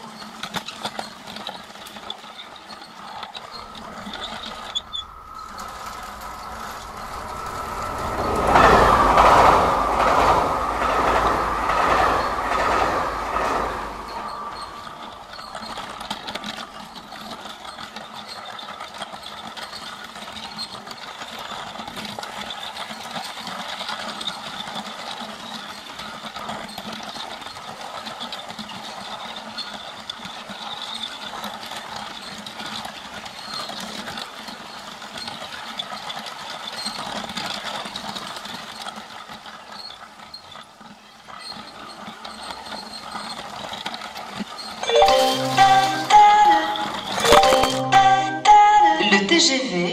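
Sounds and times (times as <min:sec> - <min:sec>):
plastic wheels clicking on track: 0:00.0 - 0:06.8, 0:15.0 - 0:44.8.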